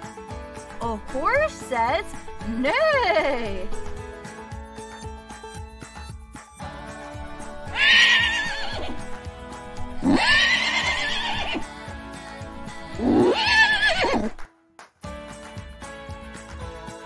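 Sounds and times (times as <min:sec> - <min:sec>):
light background music: 0:00.0 - 0:17.0
horse whinnying: 0:07.7 - 0:09.1, 0:10.0 - 0:11.7, 0:13.0 - 0:14.4.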